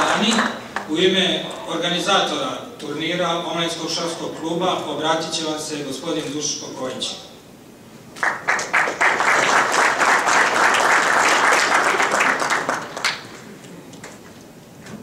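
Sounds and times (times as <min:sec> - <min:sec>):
audience applause: 0:00.0 - 0:00.9, 0:08.2 - 0:13.4.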